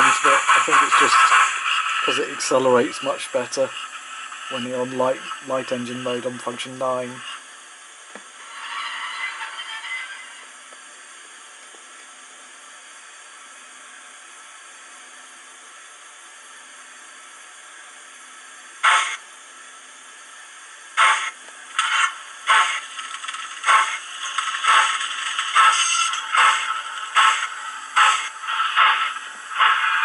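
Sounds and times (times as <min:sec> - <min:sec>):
steam locomotive chuffing: 0:00.0 - 0:06.4, 0:18.8 - 0:19.2, 0:21.0 - 0:30.0
steam hiss: 0:00.0 - 0:07.4, 0:18.8 - 0:19.2, 0:21.0 - 0:30.0.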